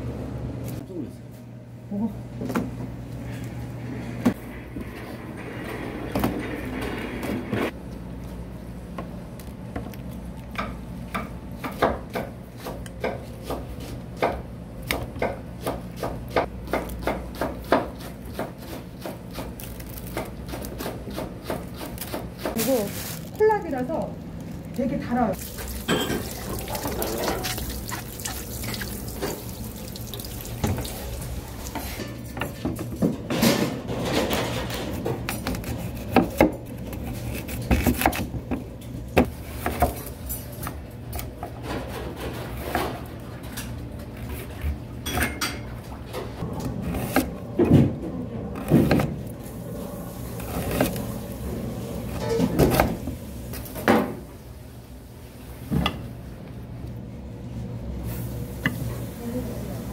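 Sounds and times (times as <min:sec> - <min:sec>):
running water: 0:25.4 - 0:31.8
dishes and pots clinking: 0:25.5 - 0:29.6, 0:45.0 - 0:46.2.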